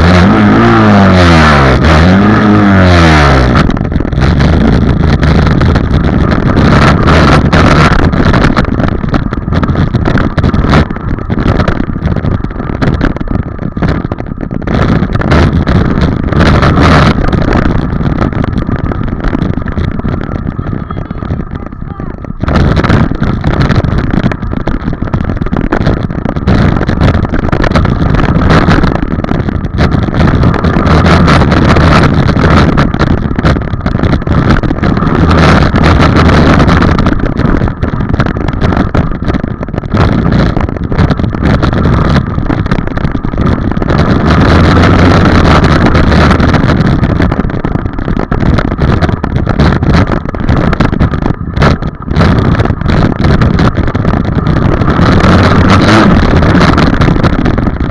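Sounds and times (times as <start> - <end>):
dirt bike engine revving: 0.0 - 3.6, 54.9 - 56.8.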